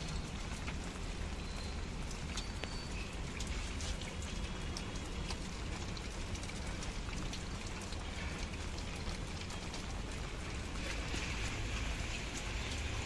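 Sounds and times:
sharp drips: 0:00.0 - 0:13.0
steady rain falling: 0:00.0 - 0:13.0.

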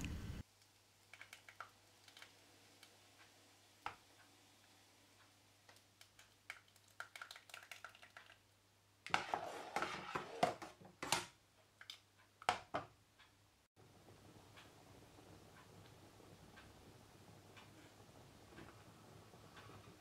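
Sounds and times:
spoon stirring and scraping a pot: 0:09.1 - 0:11.2.

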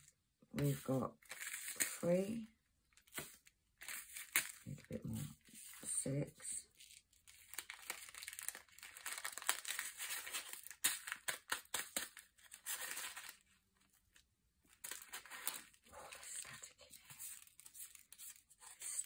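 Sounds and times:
plastic bag crinkling: 0:06.7 - 0:13.9.

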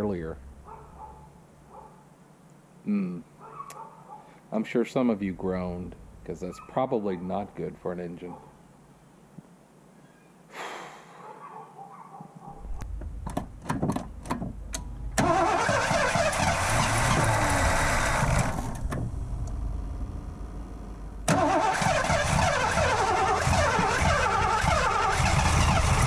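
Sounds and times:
engine starter cranking: 0:13.3 - 0:19.7, 0:21.2 - 0:26.0.

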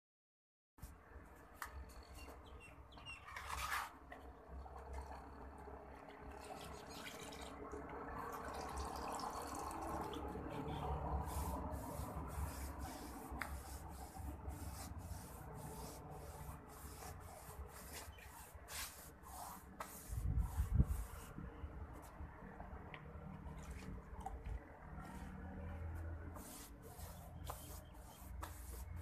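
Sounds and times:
paintbrush scraping on rough plaster: 0:03.1 - 0:06.9, 0:09.8 - 0:22.2, 0:23.5 - 0:29.0.

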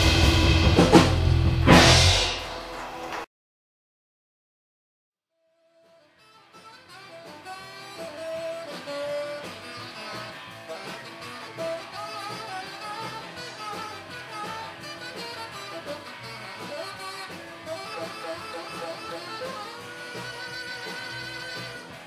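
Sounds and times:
band music with guitar: 0:00.0 - 0:03.2, 0:06.0 - 0:22.0.

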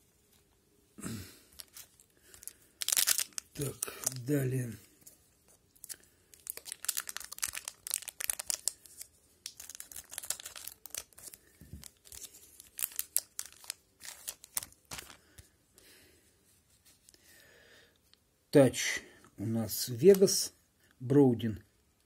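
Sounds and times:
card pack wrapper crinkling: 0:01.5 - 0:04.6, 0:05.8 - 0:15.4.

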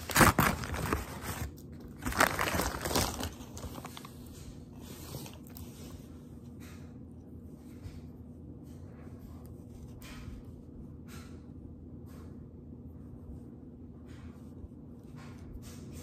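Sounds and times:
gift bag rustling and crinkling: 0:00.0 - 0:05.5.

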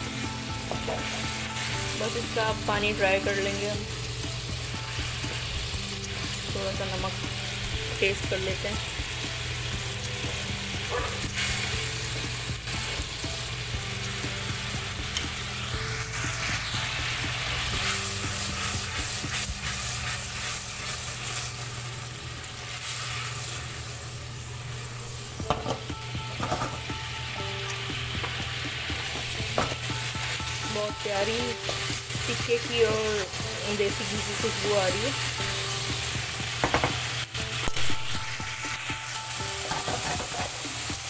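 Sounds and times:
chicken sizzling and bubbling: 0:00.0 - 0:41.0
knocks against pan: 0:25.4 - 0:26.8, 0:36.6 - 0:37.0.

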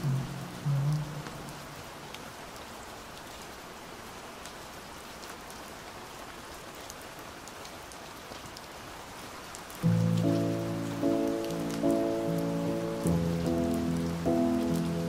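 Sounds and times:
muffled song: 0:00.0 - 0:01.7
steady rain hiss: 0:00.0 - 0:15.0
faint raindrop ticks: 0:00.8 - 0:15.0.

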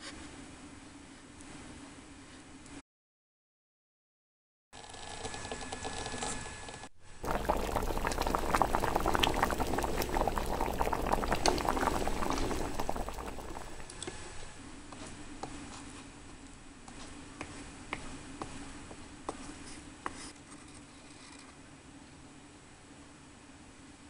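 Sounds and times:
water at a rolling boil: 0:07.0 - 0:14.4.

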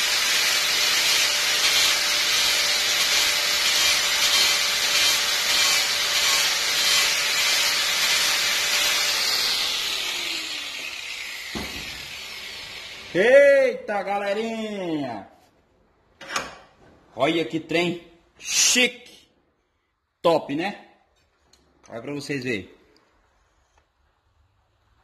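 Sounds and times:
angle grinder grinding wood: 0:00.0 - 0:13.2
grinder winding down: 0:00.0 - 0:13.2.

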